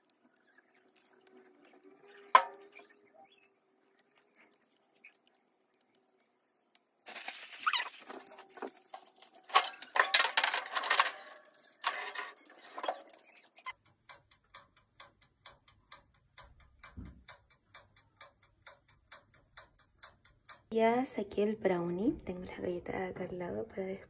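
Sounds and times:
clattering handling noise: 7.1 - 13.3
oven timer ticking: 12.4 - 21.4.

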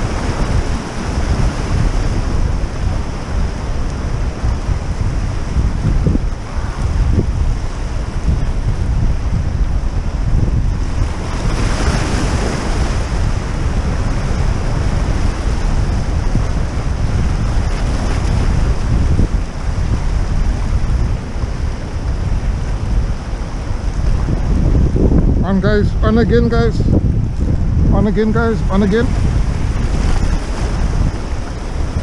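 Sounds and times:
surf washing against rocks: 0.0 - 32.0
wind buffeting microphone: 0.0 - 32.0.

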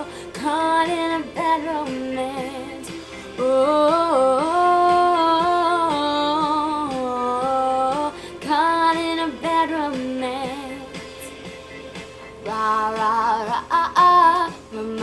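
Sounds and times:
woman singing held vowel notes: 12.5 - 15.0.

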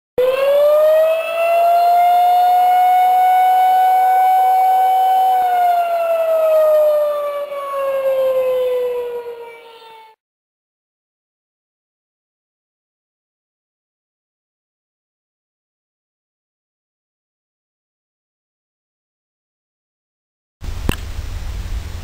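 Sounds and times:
air-raid siren wailing: 0.2 - 10.2.

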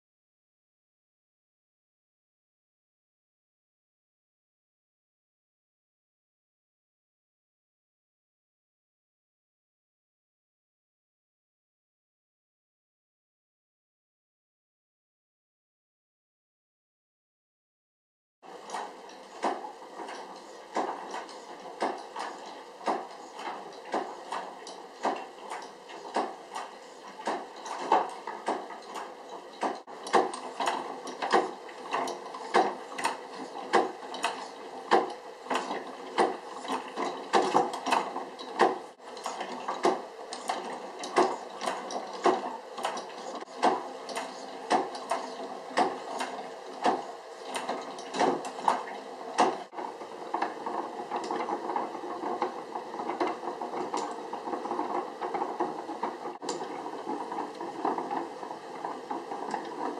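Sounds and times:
gears clicking and clacking: 18.5 - 59.9
steady mechanical whir: 18.5 - 59.9.

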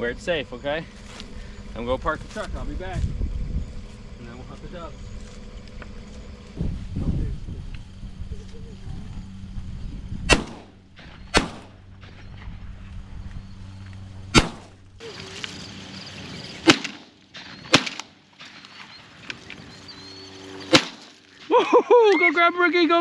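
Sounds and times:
shotgun firing: 10.3 - 11.8, 14.3 - 14.8, 16.6 - 18.1, 20.7 - 21.1.

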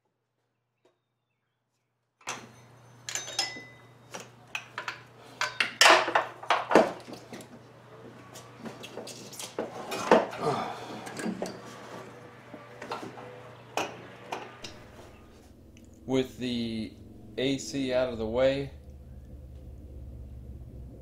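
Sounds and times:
steady low hum: 2.4 - 21.0
metallic clanks and knocks: 3.1 - 3.8.

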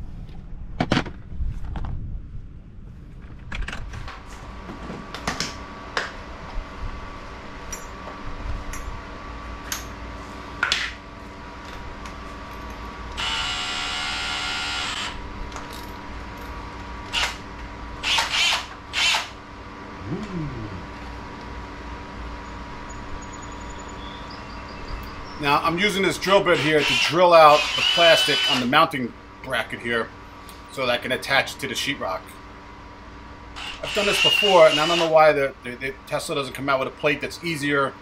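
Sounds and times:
cordless drill drilling plastic: 13.2 - 15.2, 18.0 - 19.4, 26.6 - 28.7, 33.6 - 35.1.

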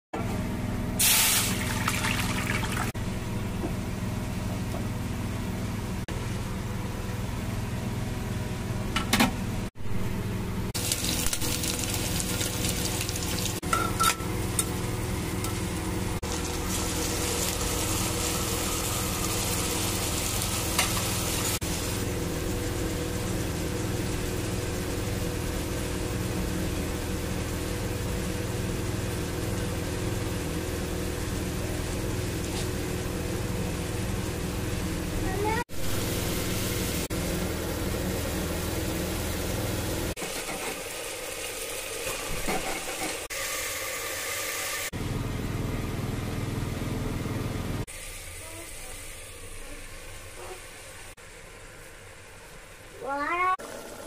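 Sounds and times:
onions sizzling in oil: 1.0 - 2.9, 10.8 - 13.6, 14.3 - 44.9.

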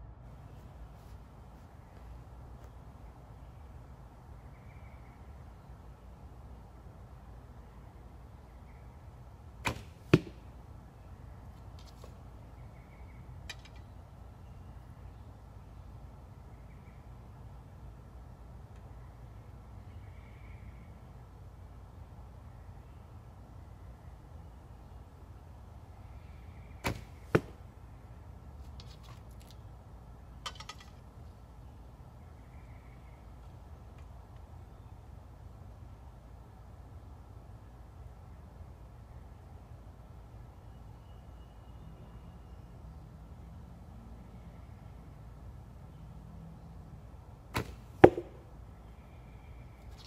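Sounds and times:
arrow striking target: 9.6 - 10.5, 26.8 - 27.6, 47.5 - 48.4
bowstring thwack: 9.7 - 10.4, 26.8 - 27.6, 47.6 - 48.4.

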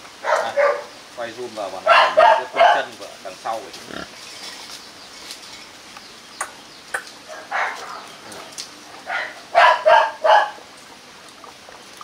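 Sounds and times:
puppies barking: 0.2 - 1.0, 1.8 - 3.0, 7.0 - 8.2, 9.0 - 10.7.

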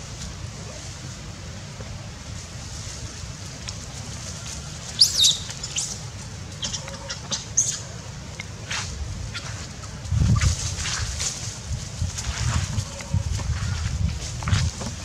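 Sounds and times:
baby monkey squealing: 5.0 - 5.9, 6.6 - 7.8.

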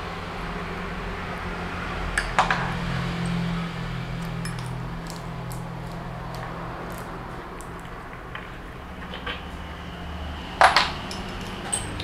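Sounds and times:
steady low hum: 0.0 - 12.0
metallic clinks and rattles: 4.2 - 6.0, 10.6 - 12.0.

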